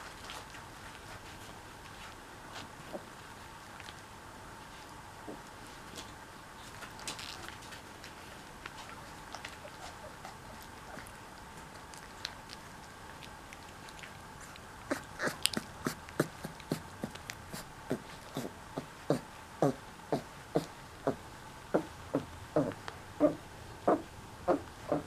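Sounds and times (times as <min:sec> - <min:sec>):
puppy yelping: 0:08.8 - 0:11.2, 0:14.9 - 0:18.5, 0:21.8 - 0:25.0.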